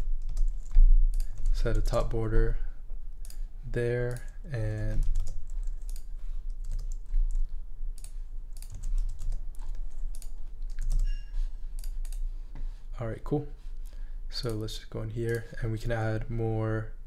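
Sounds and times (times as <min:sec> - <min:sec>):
keyboard typing: 0:00.0 - 0:02.1, 0:04.1 - 0:12.3
steady low hum: 0:00.0 - 0:17.0.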